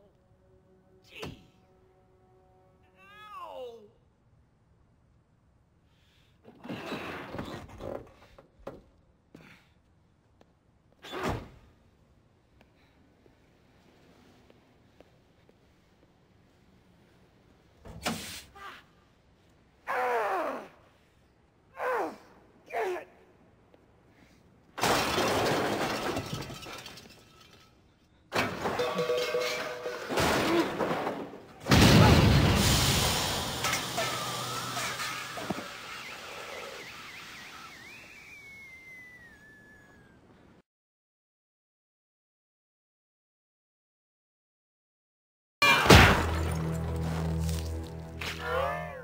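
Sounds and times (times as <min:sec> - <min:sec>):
metal crashing on a car: 0:24.8 - 0:27.6, 0:28.3 - 0:36.3
ringing metal clang: 0:28.4 - 0:30.2.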